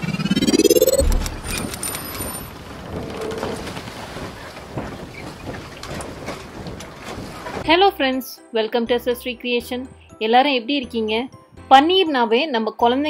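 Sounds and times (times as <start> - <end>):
rising sweep: 0.0 - 2.5
deep boom: 0.3 - 1.8.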